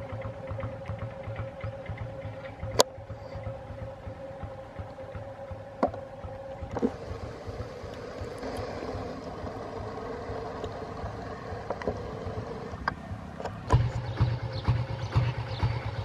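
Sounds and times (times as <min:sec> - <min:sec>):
diesel locomotive engine rumbling: 0:00.0 - 0:16.0.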